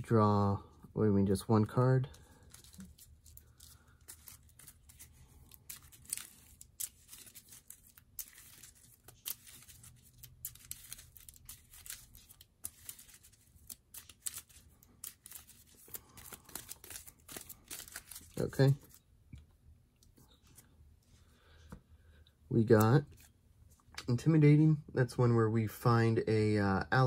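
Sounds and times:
cards handled on a tabletop: 2.1 - 19.0, 22.8 - 24.1.

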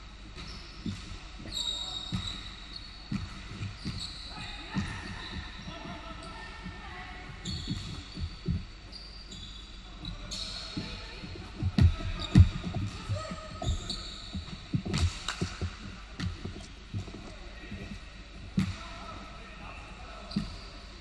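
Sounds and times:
basketball bouncing on wooden floor: 0.4 - 2.4, 3.1 - 5.8, 6.6 - 8.7, 10.3 - 18.8
shoe squeaks: 0.4 - 18.1, 20.2 - 21.0
players' footsteps: 10.0 - 19.0.

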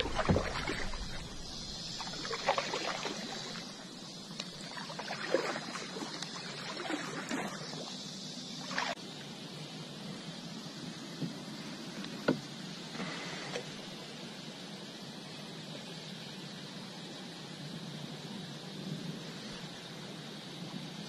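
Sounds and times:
paddle strokes through water: 0.0 - 8.0
water splashes and drips: 0.0 - 8.0, 8.6 - 9.0.

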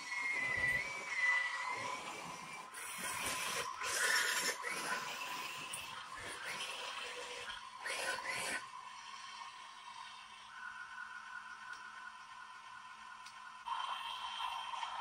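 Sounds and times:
toy tank motor whine: 0.0 - 10.6.

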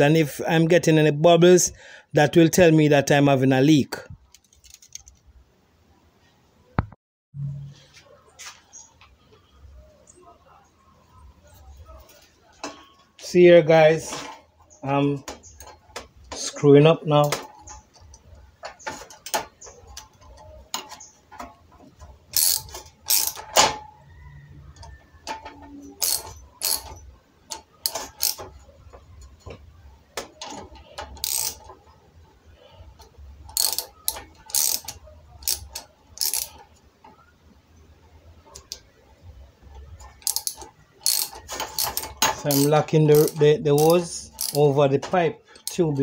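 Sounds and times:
metallic clicks of hand tool: 33.5 - 36.6, 40.0 - 44.6.

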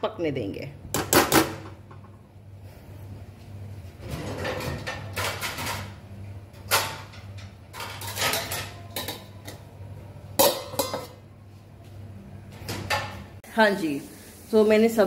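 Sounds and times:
steady low hum: 0.0 - 8.3
pots and utensils clattering: 4.0 - 11.2, 12.6 - 13.4.

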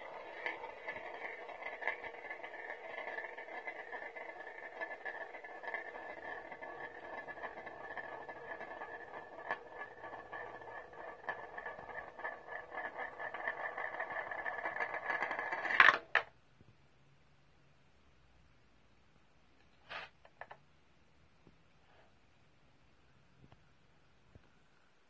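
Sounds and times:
small balls rattling in plastic: 0.0 - 16.2.

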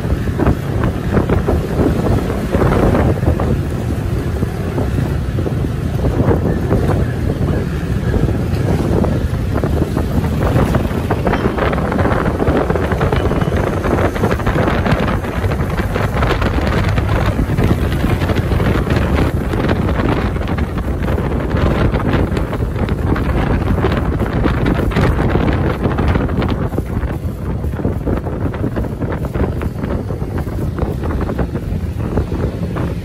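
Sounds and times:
vehicle rumble: 0.0 - 33.0
wind buffeting microphone: 0.0 - 33.0.

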